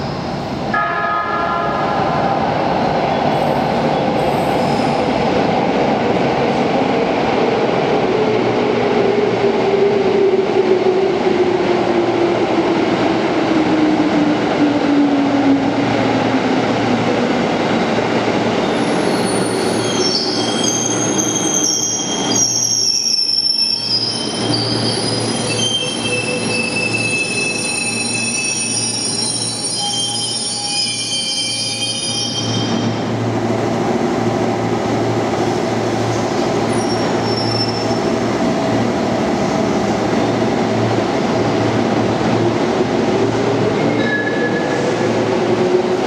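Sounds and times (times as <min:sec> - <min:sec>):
train wheels squealing: 0:03.4 - 0:05.2, 0:18.6 - 0:33.0, 0:36.6 - 0:38.2, 0:43.8 - 0:45.0.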